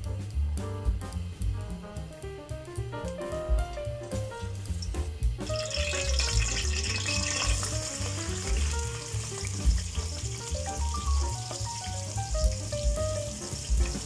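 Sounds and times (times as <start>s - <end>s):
background music with bass beat: 0.0s - 14.0s
onions sizzling in hot oil: 4.0s - 14.0s.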